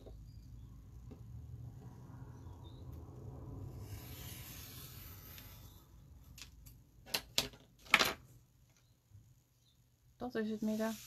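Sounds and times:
tool scratching over card paper: 0:03.8 - 0:05.8.

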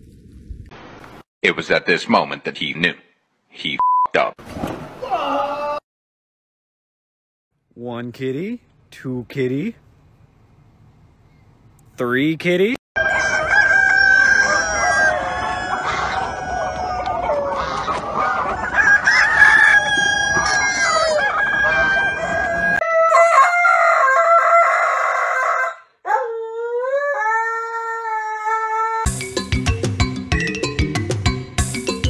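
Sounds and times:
roosters crowing: 0:13.0 - 0:29.1
chickens clucking: 0:14.4 - 0:22.8
music: 0:29.1 - 0:32.0.

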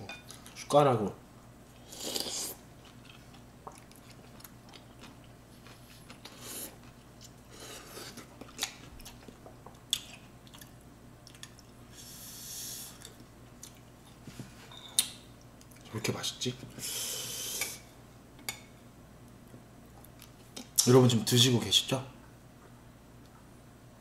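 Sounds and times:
slurping noodles: 0:01.8 - 0:02.6
person chewing: 0:01.8 - 0:11.8, 0:12.9 - 0:13.9.

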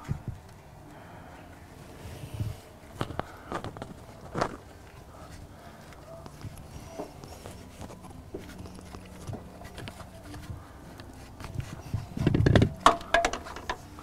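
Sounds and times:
faint scraping and handling: 0:01.4 - 0:14.0
metal knocks and clatter: 0:12.2 - 0:13.9.

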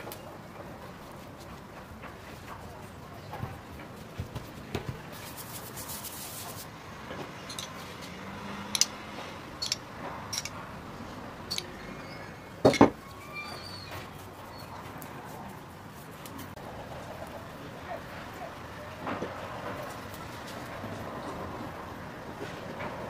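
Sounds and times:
sharp clicks and taps: 0:08.7 - 0:09.0.

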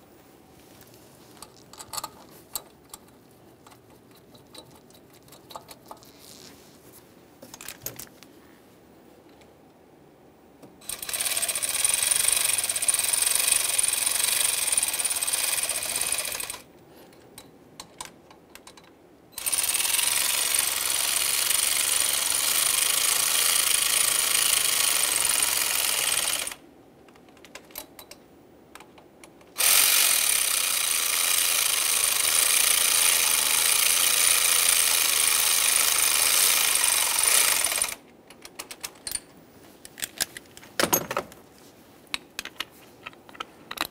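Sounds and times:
power ratchet driving bolts: 0:10.8 - 0:16.6, 0:19.4 - 0:26.6, 0:29.6 - 0:38.0.

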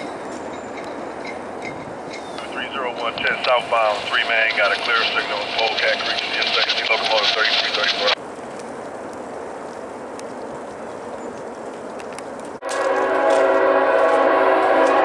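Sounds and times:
locomotive air horn chord: 0:12.6 - 0:15.0.

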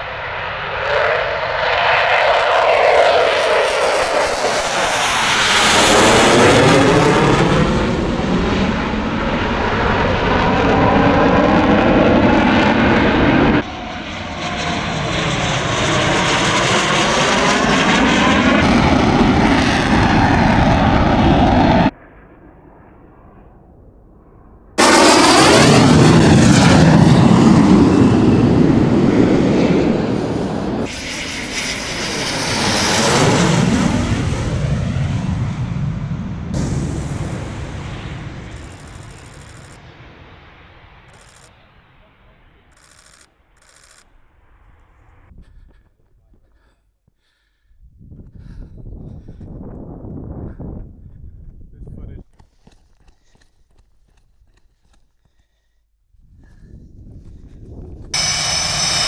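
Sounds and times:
fighter jet passing: 0:00.0 - 0:45.7, 0:57.9 - 0:59.0.

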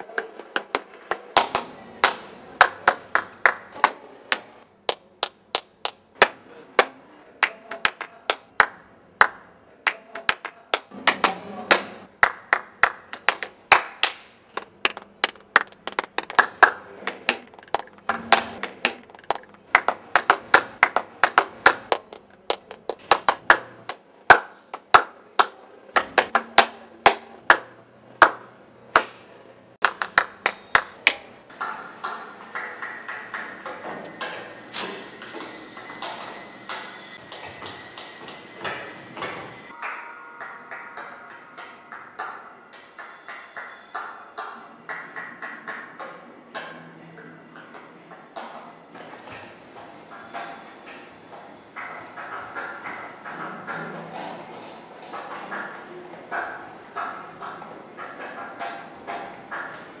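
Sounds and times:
person clapping bare hands: 0:00.2 - 0:28.4, 0:29.8 - 0:31.2.

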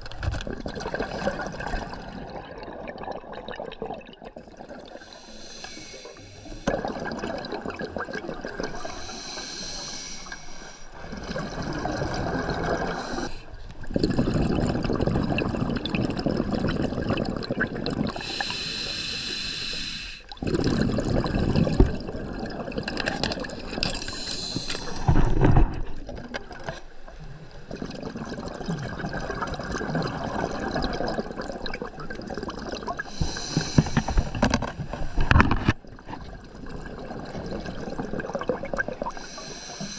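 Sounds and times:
regulator inhale hiss: 0:05.0 - 0:06.7, 0:08.8 - 0:11.0, 0:12.8 - 0:13.5, 0:18.2 - 0:20.3, 0:24.0 - 0:25.4, 0:33.0 - 0:35.4, 0:39.1 - 0:39.9
exhaust bubbles bubbling: 0:06.5 - 0:09.0, 0:11.0 - 0:18.3, 0:20.3 - 0:24.2, 0:27.7 - 0:39.4.

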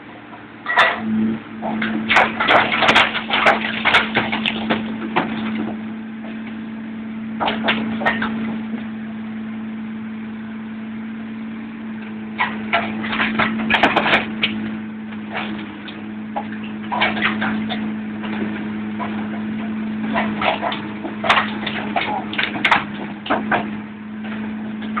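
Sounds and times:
machine hum with low tone: 0:00.0 - 0:25.0
rapid clattering knocks: 0:01.7 - 0:05.8, 0:12.4 - 0:25.0.

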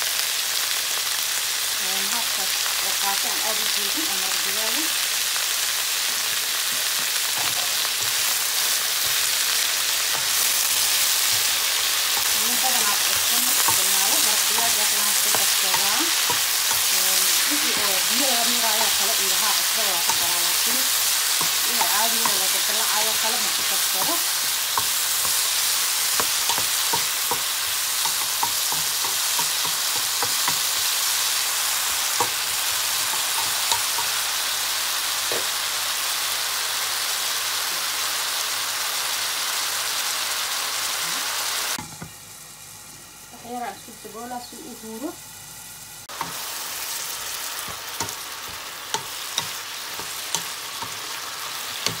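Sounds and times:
vegetables sizzling in a pan: 0:00.0 - 0:52.0
wooden spatula scraping and tapping: 0:21.3 - 0:30.7, 0:51.8 - 0:52.0.

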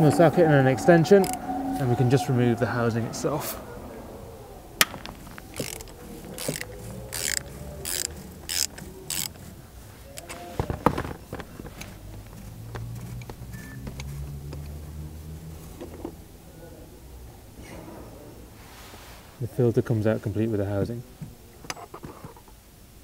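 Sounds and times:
ratchet wrench clicking: 0:05.4 - 0:09.5.

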